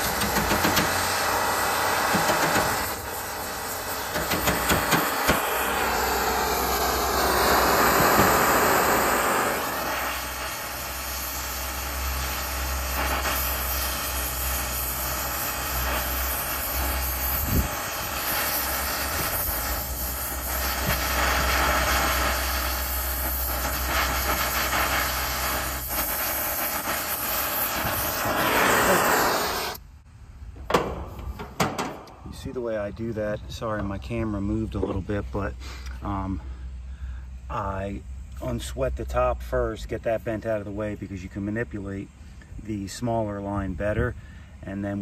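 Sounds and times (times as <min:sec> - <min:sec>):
torch flame hissing: 0:00.0 - 0:29.9.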